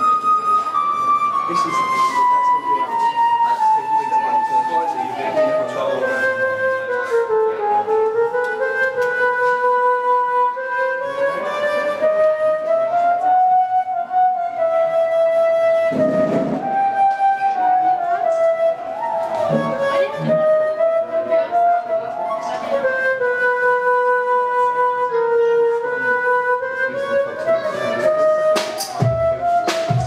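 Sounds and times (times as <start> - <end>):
theremin gliding tone: 0.0 - 7.6, 12.1 - 23.7.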